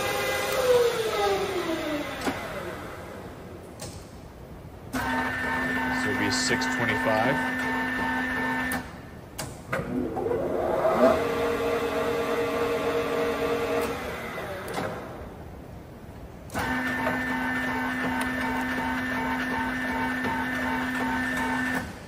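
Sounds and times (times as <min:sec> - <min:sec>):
lathe spindle gear whine: 0:00.0 - 0:03.2, 0:05.0 - 0:08.7, 0:09.9 - 0:15.2
steady machine hum: 0:00.0 - 0:22.0.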